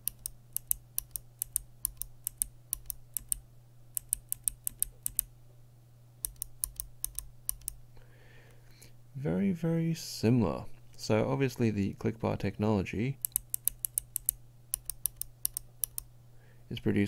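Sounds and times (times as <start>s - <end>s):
clicky keyboard switches clicking: 0.0s - 3.4s, 4.0s - 5.3s, 6.2s - 7.8s, 13.2s - 16.1s.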